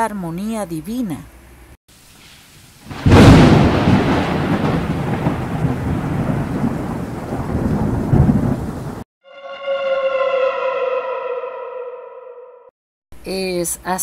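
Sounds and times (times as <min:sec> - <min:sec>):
steady rain: 0:01.9 - 0:09.0
thunder crack and rumble: 0:02.9 - 0:09.1
sustained falling tone: 0:09.2 - 0:12.7.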